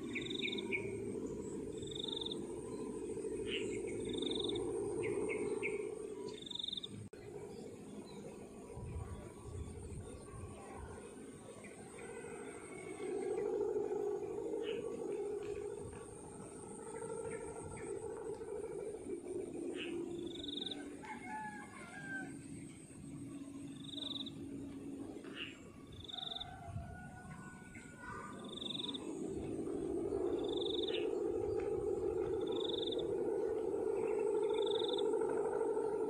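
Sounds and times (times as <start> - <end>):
kite hummers droning: 0.0 - 36.0.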